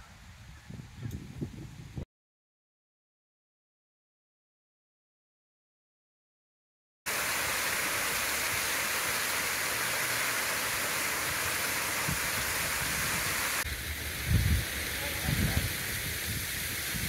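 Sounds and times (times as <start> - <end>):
water rushing down stone dam: 7.1 - 17.0.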